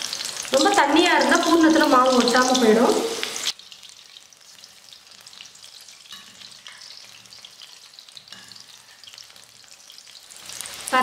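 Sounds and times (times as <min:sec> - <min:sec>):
food deep-frying in oil: 0:00.0 - 0:11.0
spoon stirring in oil: 0:03.6 - 0:10.9.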